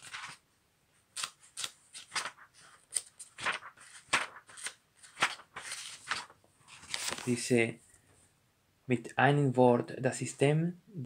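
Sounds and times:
book pages flicking: 0.0 - 0.4, 1.2 - 7.4.

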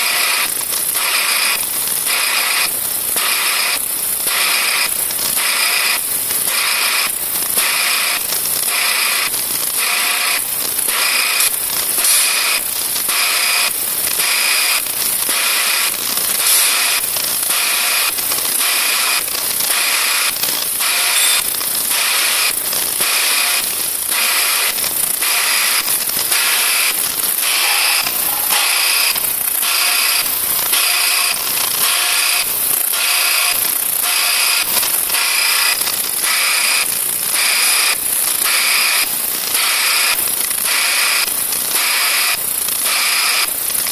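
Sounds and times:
vibrating sieve hissing and humming: 23.6 - 33.9.

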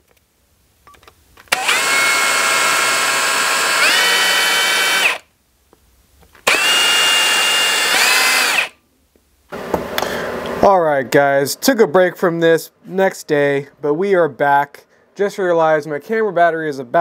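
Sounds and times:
power drill boring into plastic: 1.5 - 5.3, 6.4 - 8.8.

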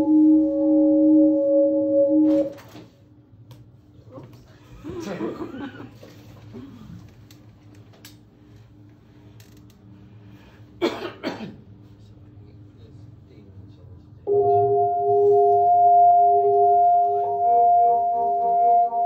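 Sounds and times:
sustained ringing chord: 0.0 - 3.0, 14.3 - 19.0
faint steady hum: 0.0 - 19.0.

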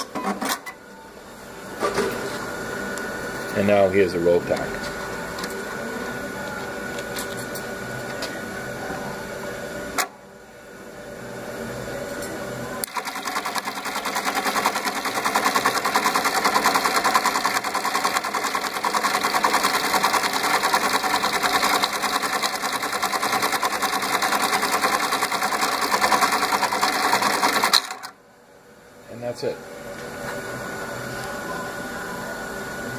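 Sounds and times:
machine hum: 0.9 - 32.9
sewing machine stitching rapidly: 12.8 - 28.1.

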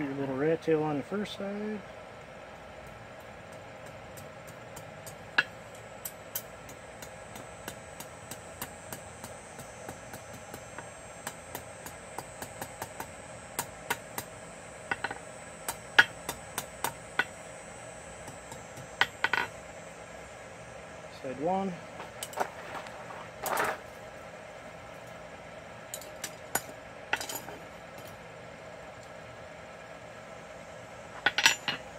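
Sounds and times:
steady hum: 0.0 - 31.9
hammer tapping steel on anvil: 2.8 - 14.3, 14.9 - 17.4, 31.2 - 31.8.

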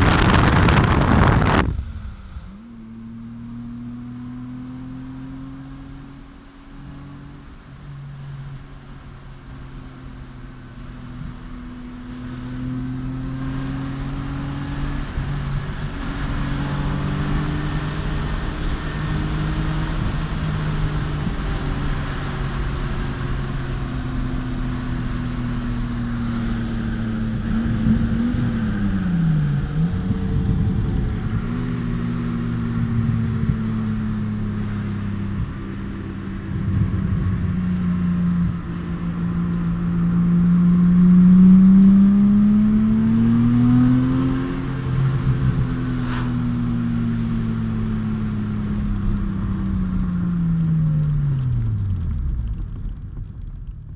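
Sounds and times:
car engine: 0.0 - 53.9
road noise inside car: 0.0 - 53.9.

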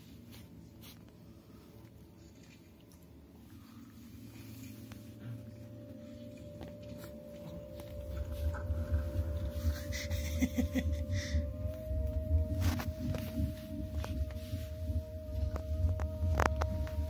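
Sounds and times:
steady high tone: 3.6 - 17.0.

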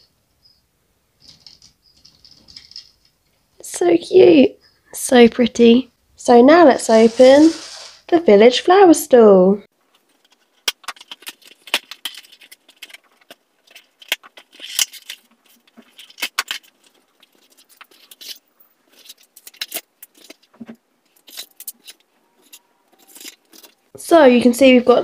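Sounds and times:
small plastic pieces rattling: 1.2 - 3.3, 9.9 - 23.9
plastic bags crinkling: 9.9 - 23.9.

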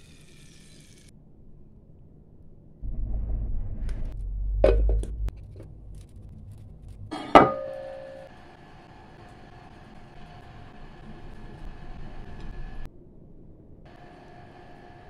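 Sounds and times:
low rumble: 2.8 - 12.9.

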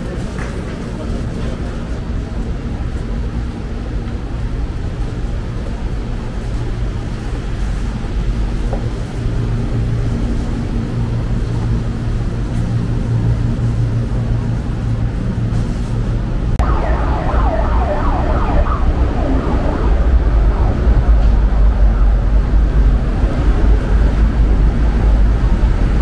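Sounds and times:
traffic engines rumbling: 0.0 - 26.0
warbling tone: 16.6 - 23.2.

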